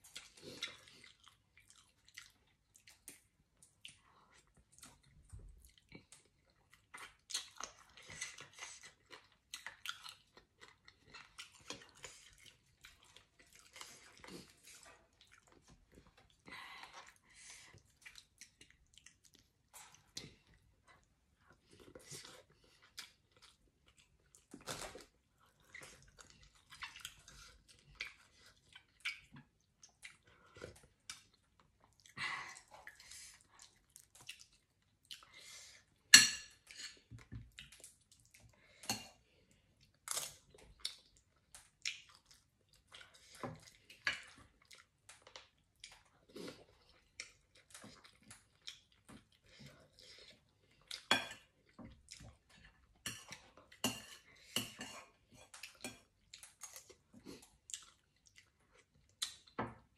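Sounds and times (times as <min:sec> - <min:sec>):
person chewing: 0:00.0 - 0:59.6.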